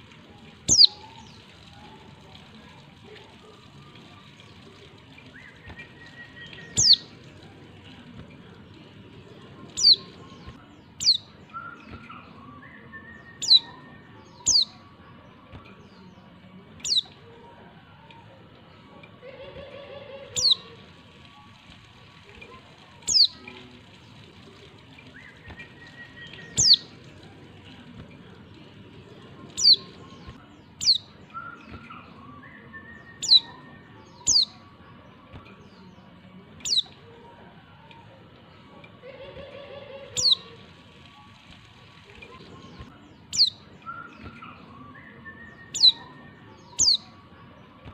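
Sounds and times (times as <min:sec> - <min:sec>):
bird high chirps sweeping down: 0:00.7 - 0:01.1
high-pitched bird call notes: 0:00.7 - 0:01.4, 0:05.5 - 0:07.1, 0:19.7 - 0:20.8, 0:23.1 - 0:23.5, 0:25.8 - 0:26.9, 0:32.3 - 0:34.6, 0:40.1 - 0:40.6.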